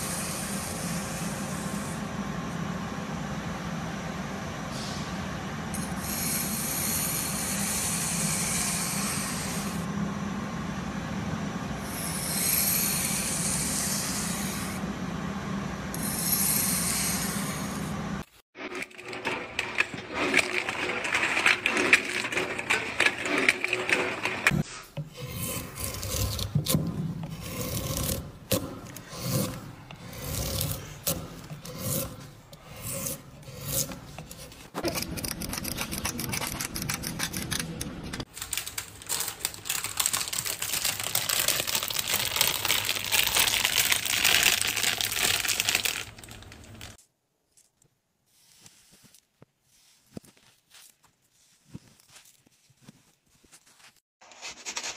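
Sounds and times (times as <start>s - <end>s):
tools rubbing and scraping: 18.6s - 38.3s, 48.4s - 54.9s.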